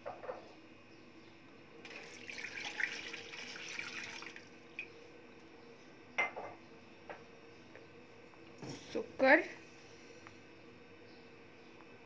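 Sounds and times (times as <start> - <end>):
water pouring into saucepan: 1.9 - 4.5
glass knocking on counter: 6.2 - 6.6.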